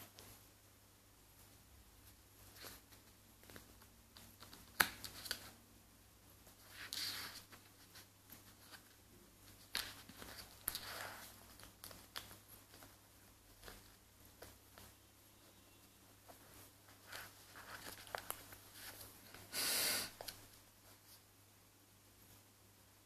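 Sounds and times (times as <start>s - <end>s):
paper pages rustling: 2.0s - 5.6s, 6.4s - 15.0s, 16.1s - 19.5s.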